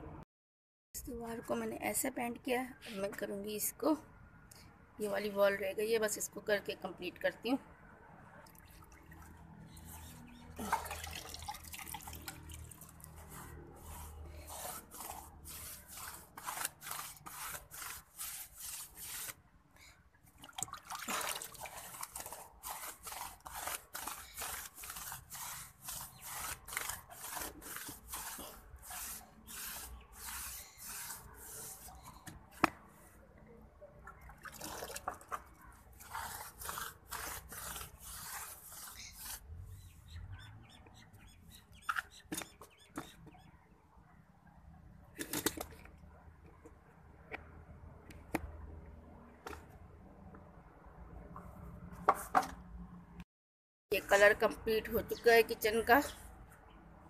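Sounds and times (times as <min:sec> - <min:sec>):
paintbrush scrubbing on brick: 0:09.7 - 0:19.4, 0:21.3 - 0:32.3, 0:35.3 - 0:40.2.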